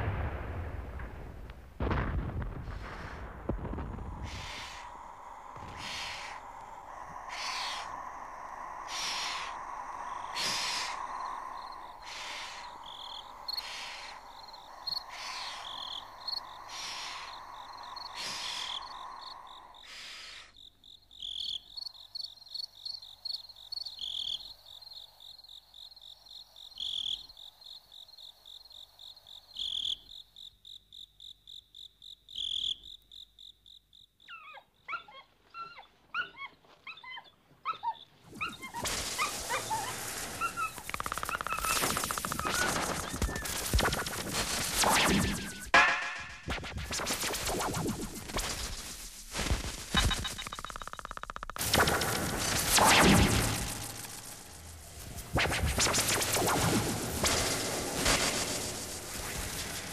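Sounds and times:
steady hiss: 0.0s - 30.1s, 38.2s - 59.9s
loud broad insect chirp: 3.7s - 34.6s, 37.9s - 45.8s, 46.9s - 59.9s
high pulsing insect trill: 4.1s - 34.4s, 38.0s - 45.8s, 46.9s - 59.9s
quick high rising calls: 38.3s - 45.8s.

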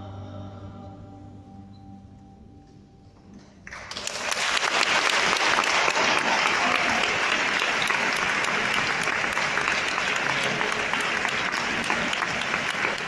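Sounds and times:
congregation applauding: 3.6s - 13.0s.

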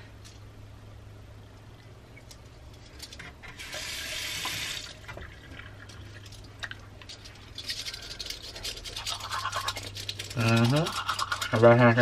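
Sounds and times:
bathroom tap running: 3.5s - 6.4s
toothbrush scrubbing teeth: 7.2s - 12.0s.

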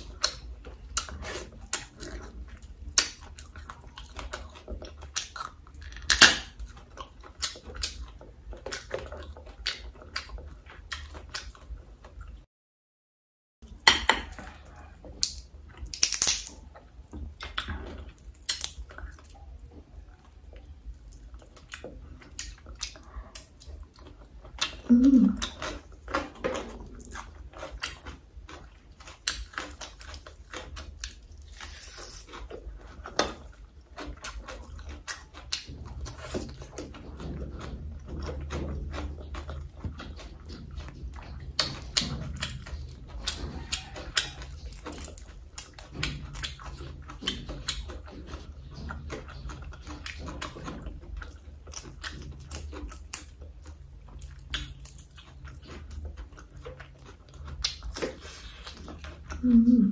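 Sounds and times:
crunching and chewing: 0.0s - 12.5s, 13.6s - 59.9s
crab shell cracking: 15.2s - 16.6s
low mouth sound: 24.6s - 25.7s, 59.3s - 59.9s.

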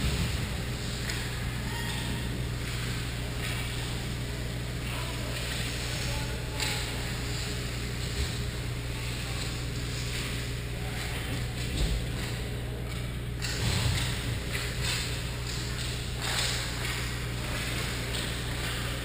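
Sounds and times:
steady low hum: 0.0s - 19.0s
hockey sticks clacking on ice: 11.5s - 18.9s.

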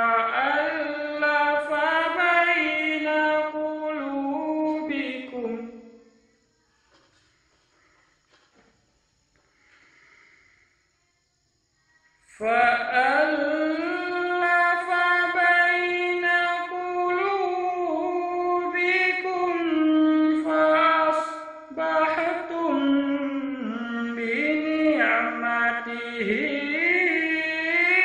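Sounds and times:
man reciting melodically: 0.0s - 6.0s, 12.3s - 28.0s.

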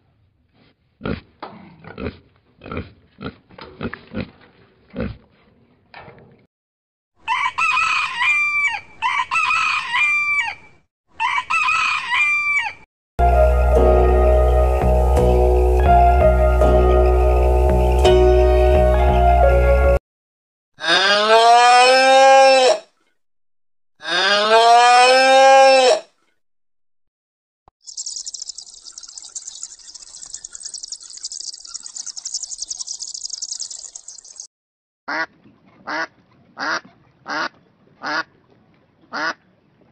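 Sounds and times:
rooster crowing: 7.2s - 10.6s, 11.2s - 12.8s
high-pitched insect trilling: 27.8s - 34.5s.

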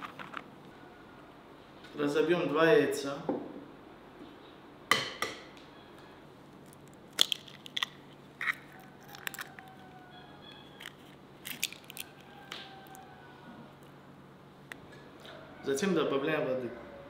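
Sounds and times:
eggshells cracking: 6.6s - 13.1s.

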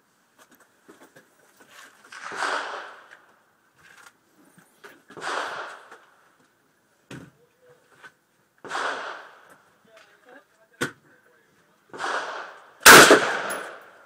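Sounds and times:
rifle shots: 2.1s - 3.1s, 5.2s - 6.0s, 8.6s - 9.5s, 11.9s - 14.0s.

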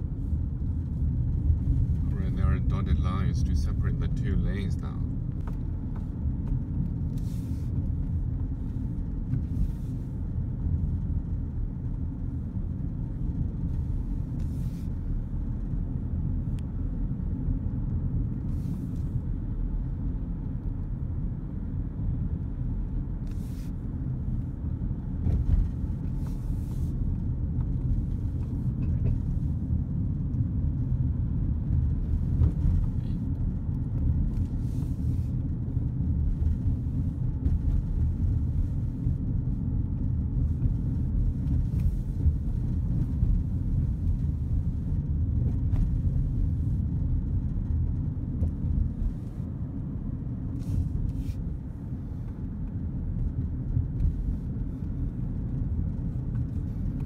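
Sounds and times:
car engine and tyre rumble: 0.0s - 57.0s.

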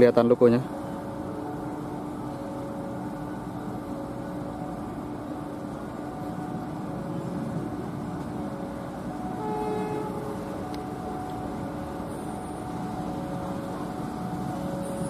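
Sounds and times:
locomotive engine droning: 0.0s - 15.0s.

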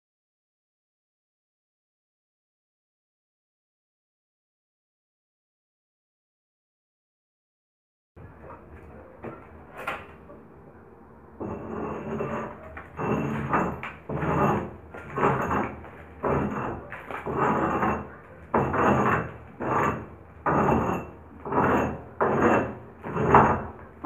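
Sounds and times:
scraping paint off plaster wall: 11.4s - 24.0s.

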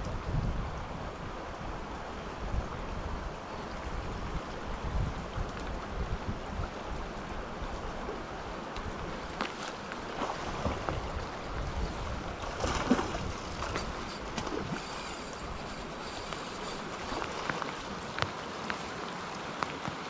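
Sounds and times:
river rushing over rocks: 6.4s - 20.0s
water splashing: 9.0s - 20.0s.

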